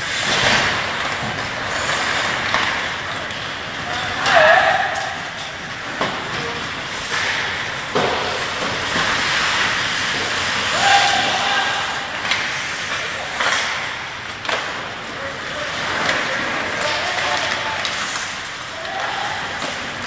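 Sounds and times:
hockey sticks and puck clacking: 0.0 - 20.0
skate blades scraping ice: 0.0 - 20.0
person shouting: 10.7 - 12.0.

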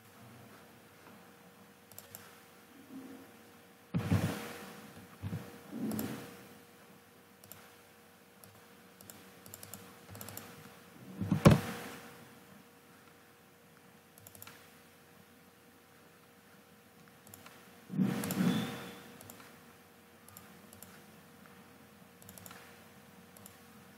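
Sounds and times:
faint steady hum: 0.0 - 23.9
mouse and keyboard clicks: 1.9 - 2.4, 5.2 - 6.3, 7.4 - 7.8, 8.4 - 11.6, 14.2 - 14.7, 17.2 - 18.5, 19.2 - 19.6, 20.3 - 21.1, 22.2 - 22.8, 23.4 - 23.6.

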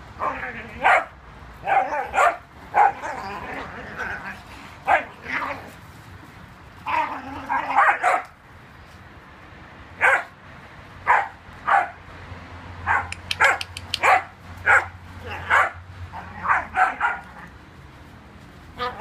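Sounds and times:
dogs barking in play: 0.1 - 8.4, 9.9 - 10.4, 11.0 - 12.2, 12.8 - 17.6, 18.6 - 19.0.

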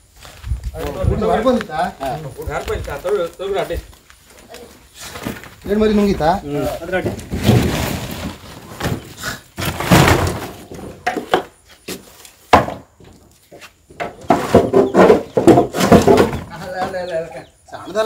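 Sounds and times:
clattering knocks and scrapes: 5.1 - 17.1.

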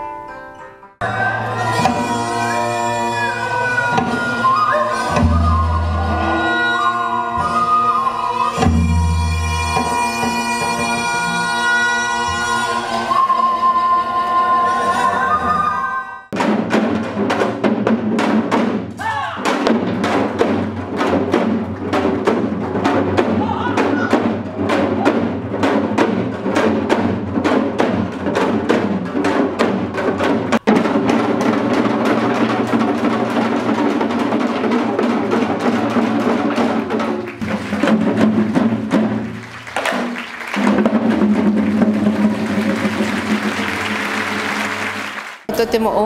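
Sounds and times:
accompanying music: 0.0 - 46.0
hourglass drums beaten fast: 16.4 - 39.4.

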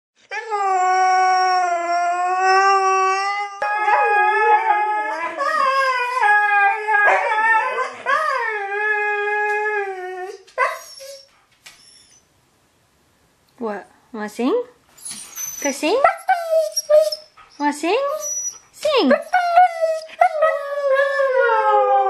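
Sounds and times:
dogs howling: 0.4 - 10.8.

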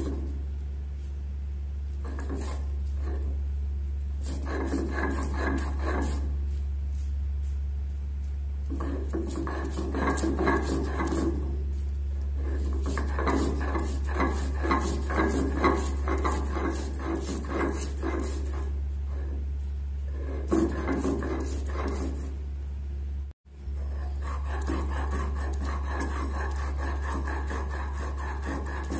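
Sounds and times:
steady low hum: 0.0 - 28.9
stone roller grinding leaves: 4.2 - 6.5, 8.6 - 22.4, 23.7 - 28.9.

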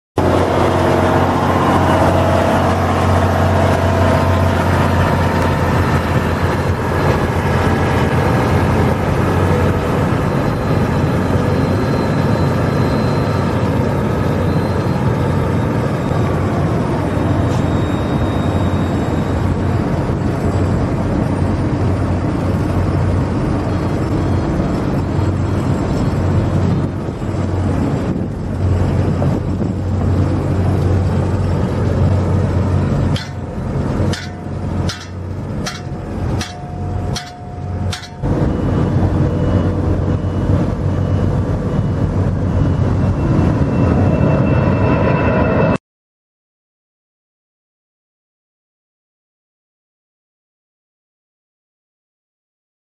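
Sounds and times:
heavy diesel machinery rumbling: 0.2 - 45.5.

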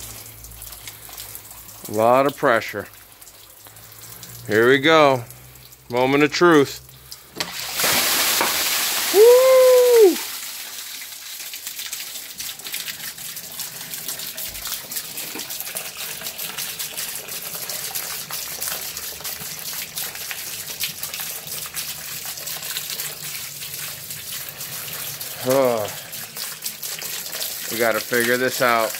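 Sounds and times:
water rushing down pipe: 0.0 - 28.9
water spraying out: 0.0 - 28.9
person crying out: 9.1 - 10.3.

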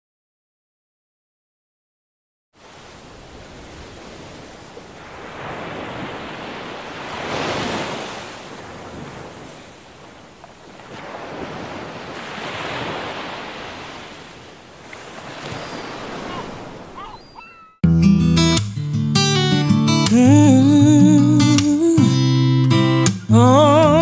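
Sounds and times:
ocean waves washing in: 2.6 - 17.6.

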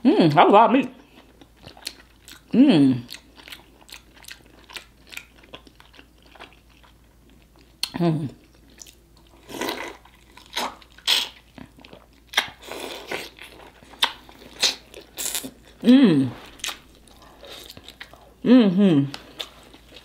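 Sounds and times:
wet chewing and smacking: 1.0 - 15.8, 16.5 - 18.4
person humming mm: 2.5 - 3.1, 15.8 - 16.5, 18.4 - 19.2.

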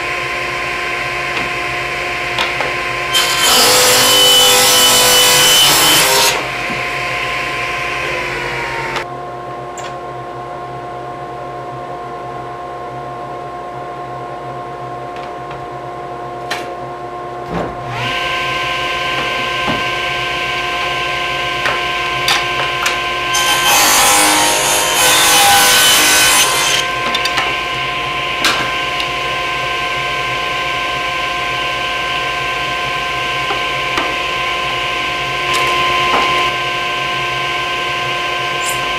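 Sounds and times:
table saw blade whining: 0.0 - 9.1, 17.8 - 38.9
saw cutting wood: 0.7 - 9.0, 17.8 - 38.9.

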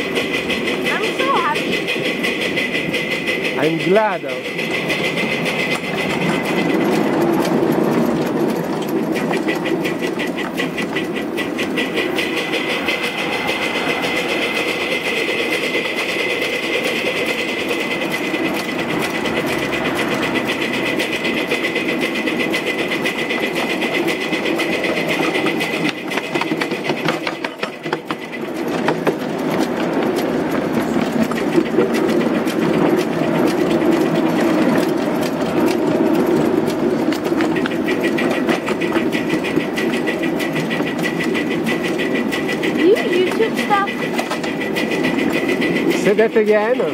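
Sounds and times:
steam locomotive chuffing: 0.0 - 46.9
steady high tone: 11.9 - 24.4.

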